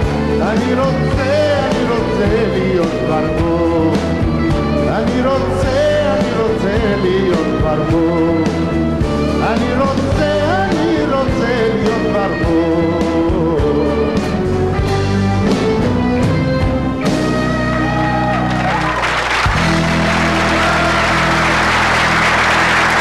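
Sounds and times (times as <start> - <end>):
man singing: 0.0 - 14.6
live pop band playing: 0.0 - 23.0
audience applause: 17.6 - 23.0.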